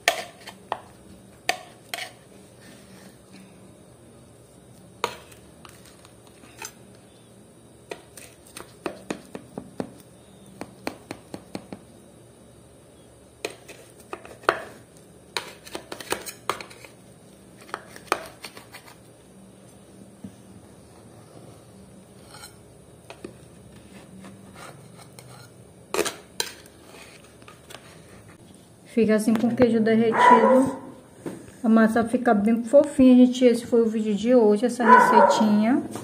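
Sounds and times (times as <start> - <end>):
knife scraping metal pan: 1.9 - 2.2, 22.2 - 22.6, 24.5 - 27.2.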